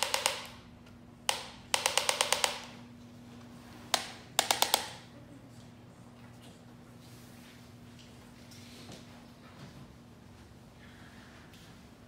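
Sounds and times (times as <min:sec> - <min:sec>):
rapid mechanical taps: 0:01.3 - 0:02.8.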